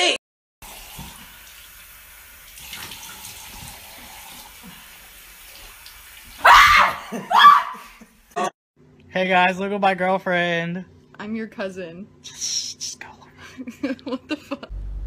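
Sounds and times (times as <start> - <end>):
tap water running into sink: 0.6 - 6.4
woman screaming: 6.4 - 7.9.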